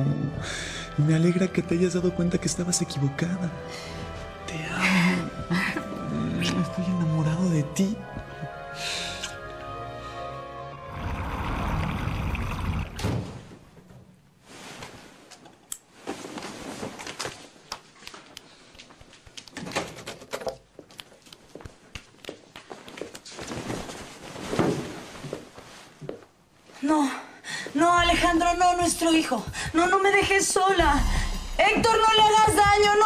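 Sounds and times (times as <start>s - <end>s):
door being opened: 12.9s - 13.6s
low rumble: 30.8s - 32.1s.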